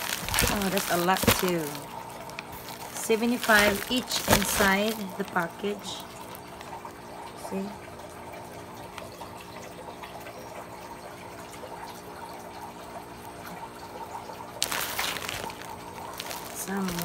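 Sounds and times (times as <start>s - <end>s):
plastic wrap rustling: 0.0s - 6.7s, 14.6s - 17.0s.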